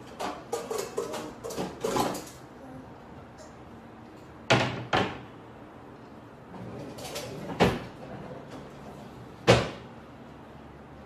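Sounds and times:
cupboard doors knocking shut: 0:09.4 - 0:09.8.

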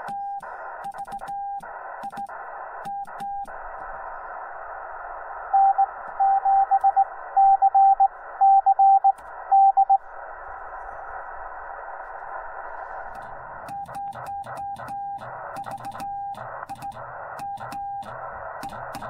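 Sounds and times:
radio band hiss: 0:00.0 - 0:19.0
morse code sidetone: 0:05.6 - 0:10.0.

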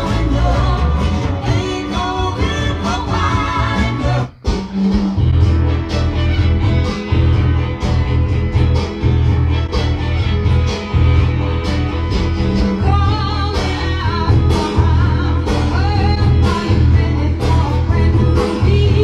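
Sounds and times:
person singing: 0:00.0 - 0:05.0, 0:12.6 - 0:19.0
song with guitar and bass: 0:00.0 - 0:19.0.

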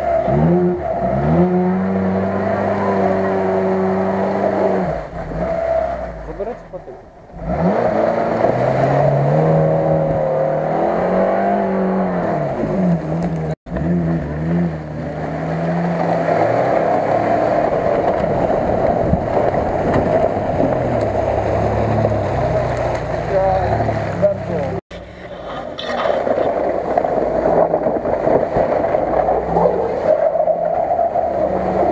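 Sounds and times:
off-road engines revving in mud: 0:00.0 - 0:31.9
vehicle driving through puddle: 0:07.4 - 0:31.9.

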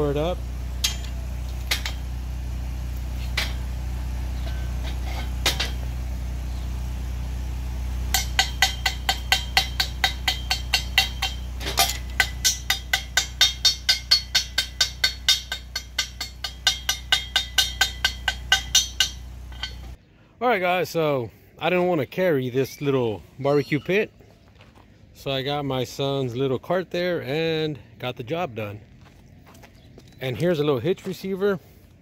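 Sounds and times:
steady low hum: 0:00.0 - 0:20.4
chipping hammer striking metal: 0:08.1 - 0:20.0.

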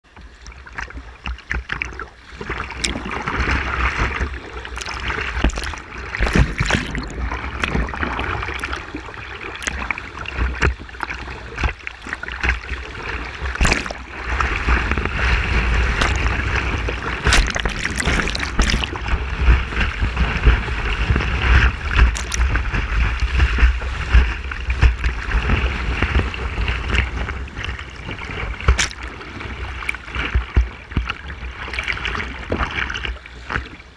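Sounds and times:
low rumble on microphone: 0:00.1 - 0:33.9
paddle strokes splashing water: 0:00.1 - 0:33.9
rushing whitewater: 0:02.5 - 0:30.4.

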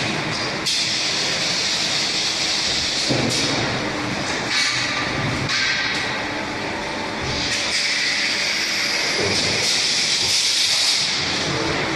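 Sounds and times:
machine hissing: 0:07.4 - 0:11.5.

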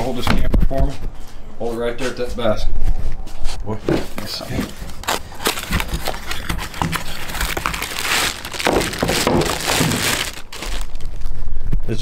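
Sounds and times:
paper packaging crinkling: 0:04.4 - 0:11.4.

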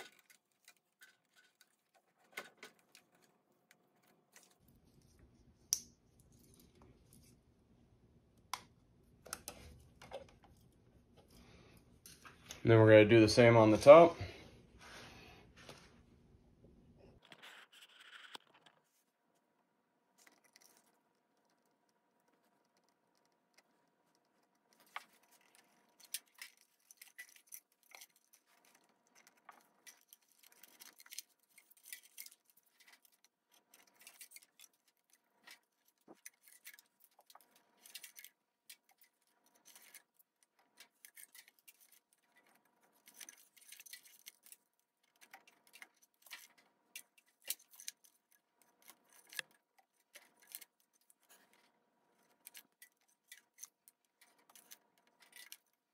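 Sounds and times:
cable being wound ticking: 0:20.2 - 0:55.9.

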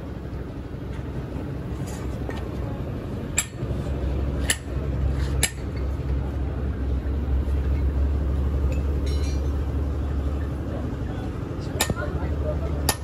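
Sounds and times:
low mechanical hum: 0:00.0 - 0:13.0
metal clink: 0:08.7 - 0:09.6.

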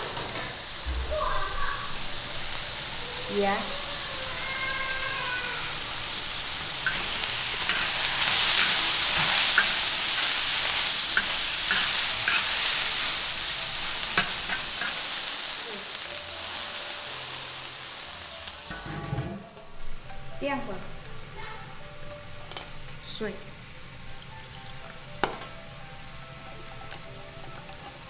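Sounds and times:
food sizzling in a pan: 0:00.0 - 0:28.0.

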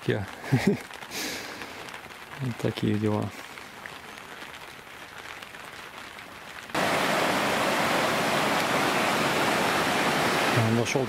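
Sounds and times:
light rain patter: 0:00.0 - 0:11.0
river rushing: 0:06.7 - 0:11.0.

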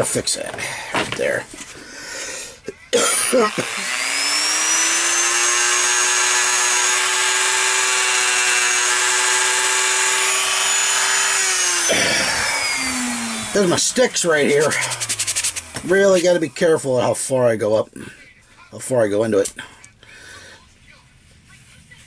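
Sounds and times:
rotary tool motor whine: 0:03.2 - 0:16.8.

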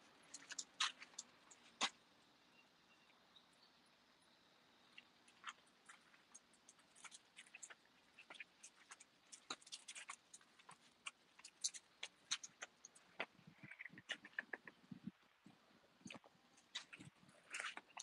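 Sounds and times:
dog claws clicking on concrete: 0:06.7 - 0:13.3.

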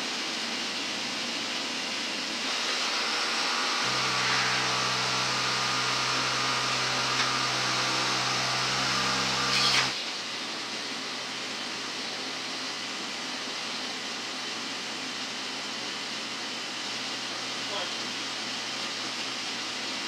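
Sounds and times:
machine hum: 0:03.0 - 0:10.0.

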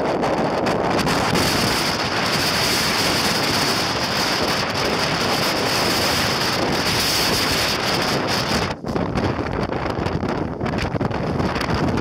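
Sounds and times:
blizzard wind buffeting microphone: 0:00.0 - 0:12.0.

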